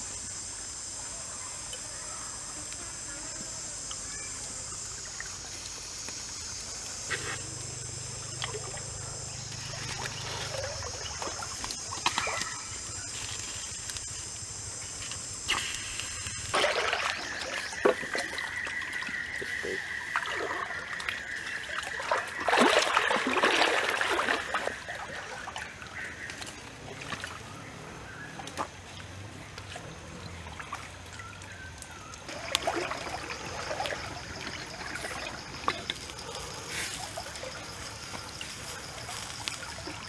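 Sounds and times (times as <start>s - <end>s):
stream water trickling: 1.6s - 40.0s.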